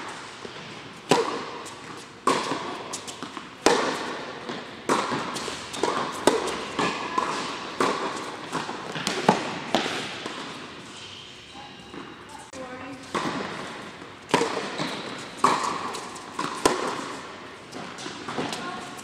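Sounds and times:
tennis balls struck by racquets: 0.0s - 10.8s, 13.1s - 19.0s
balls bouncing on hard court: 0.4s - 10.6s, 11.9s - 19.0s.

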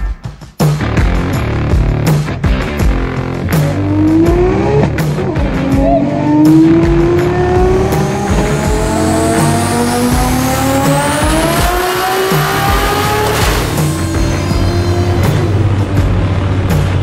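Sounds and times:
rock music with a beat: 0.0s - 17.0s
car engine accelerating hard: 2.8s - 17.0s
turbo whine: 3.6s - 16.8s.

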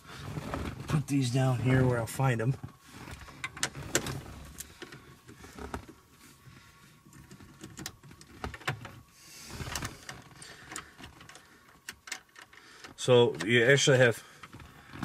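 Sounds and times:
soft rustle: 0.0s - 10.7s.

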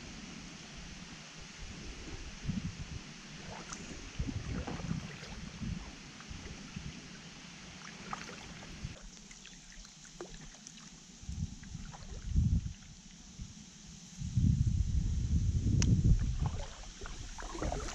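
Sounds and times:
steady hiss: 0.0s - 17.9s
uneven low rumble: 0.8s - 7.3s, 14.2s - 17.9s
paddle strokes in water: 3.3s - 11.0s, 16.2s - 17.9s.

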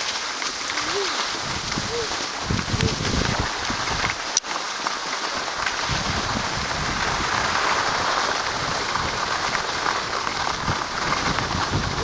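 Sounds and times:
skis sliding over snow: 0.0s - 12.0s.

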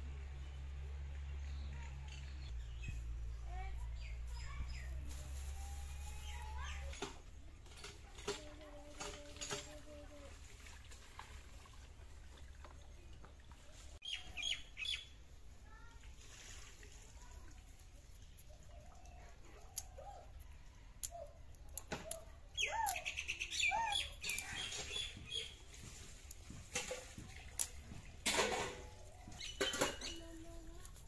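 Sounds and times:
birds chirping: 13.4s - 15.2s, 18.2s - 25.8s, 29.0s - 30.9s.

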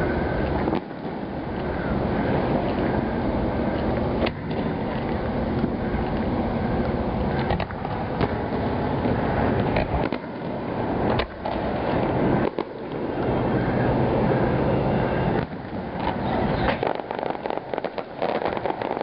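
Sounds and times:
steady low rumble: 0.0s - 19.0s
firework shells bursting: 15.4s - 19.0s.

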